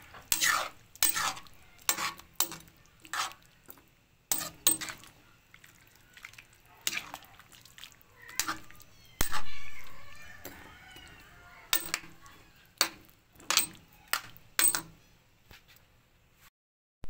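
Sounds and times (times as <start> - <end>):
utensil clanking on metal pan: 0.0 - 3.4, 4.3 - 5.1, 11.7 - 12.2, 12.8 - 15.0.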